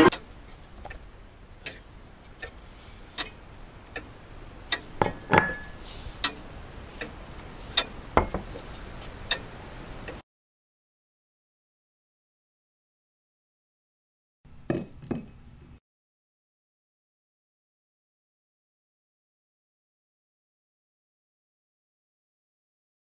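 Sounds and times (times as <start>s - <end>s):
faint hiss: 0.0s - 10.2s.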